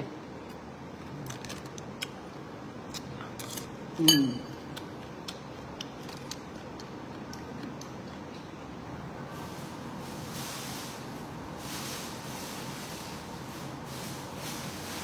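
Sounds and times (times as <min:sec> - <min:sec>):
metal spoon clinking on bowl: 0:04.0 - 0:04.6.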